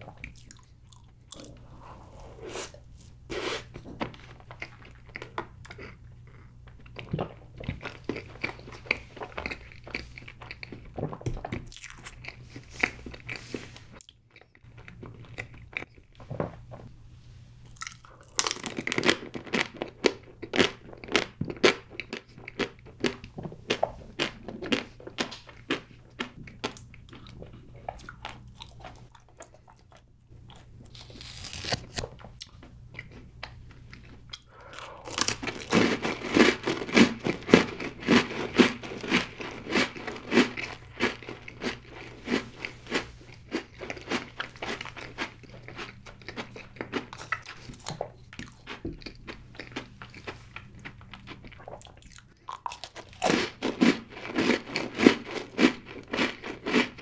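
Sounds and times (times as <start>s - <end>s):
chewing crunchy snacks: 0.0s - 1.7s, 3.6s - 16.1s, 17.7s - 57.0s.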